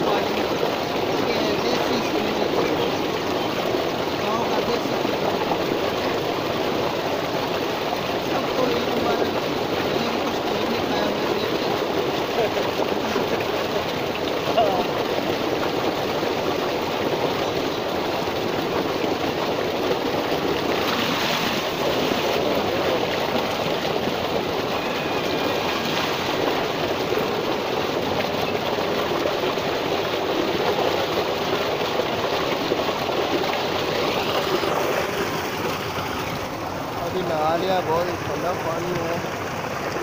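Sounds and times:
water gushing into a tank: 0.0s - 40.0s.

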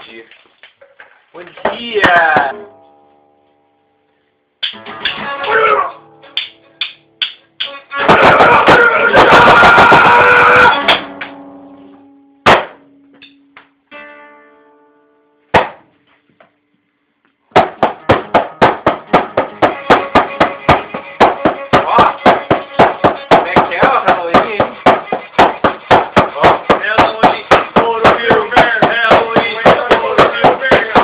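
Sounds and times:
distorted guitar chord ringing: 2.5s - 4.4s, 5.3s - 7.2s, 10.7s - 15.5s
dense distorted guitar: 7.9s - 13.6s
fast drum beat: 8.1s - 10.3s, 19.6s - 31.0s
sharp hits: 12.4s - 13.4s.

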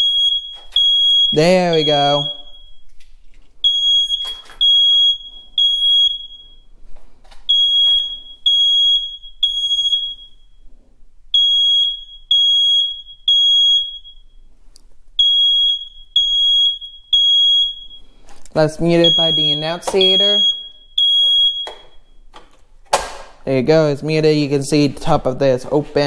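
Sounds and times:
fire alarm beeping: 0.0s - 3.0s, 3.6s - 6.8s, 7.5s - 10.7s, 11.3s - 14.5s, 15.2s - 22.3s.

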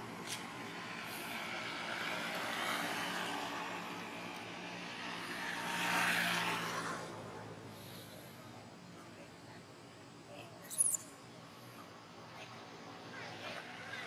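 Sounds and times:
vehicle passing: 0.0s - 8.9s.

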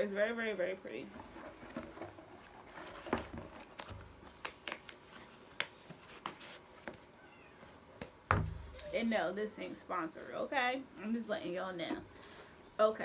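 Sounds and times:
soft cardboard rustling: 1.0s - 9.7s.

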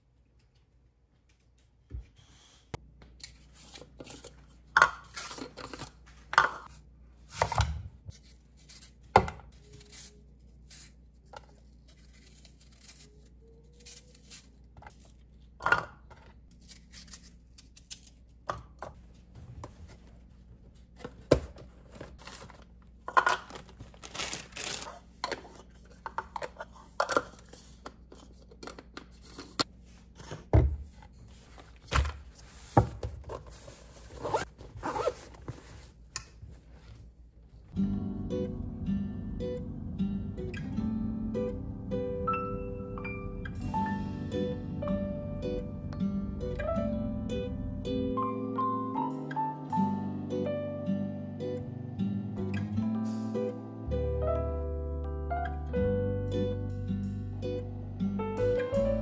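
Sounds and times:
packaging tearing and crinkling: 23.4s - 24.9s.

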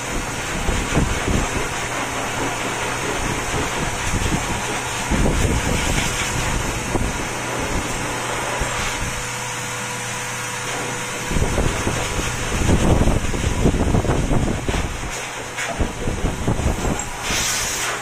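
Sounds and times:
fan hissing: 0.0s - 18.0s
low rumbling: 11.0s - 17.8s.

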